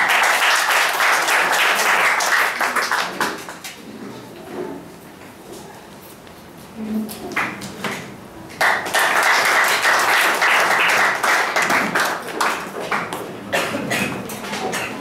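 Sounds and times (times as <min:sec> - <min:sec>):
audience applauding: 0:00.0 - 0:03.6, 0:08.6 - 0:13.7.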